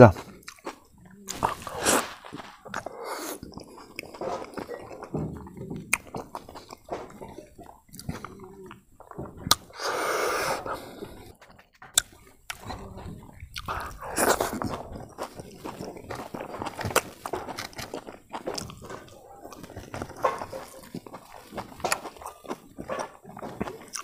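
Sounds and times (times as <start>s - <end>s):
chewing and biting: 0.1s - 24.0s
breathy hiss: 1.4s - 3.5s, 9.7s - 11.4s, 13.6s - 14.6s
lip smacks: 5.8s - 24.0s.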